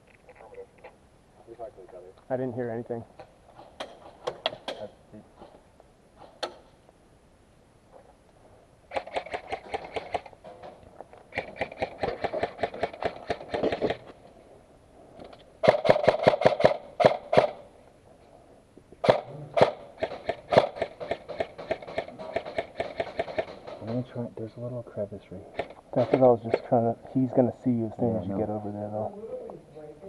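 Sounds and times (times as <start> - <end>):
airsoft rifle firing bursts: 8.9 - 10.3, 11.3 - 14.0, 15.6 - 17.6, 19.0 - 23.5.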